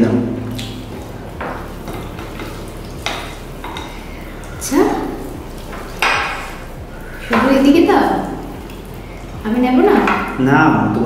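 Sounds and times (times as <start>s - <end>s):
hands squishing rice and curry: 1.2s - 4.6s.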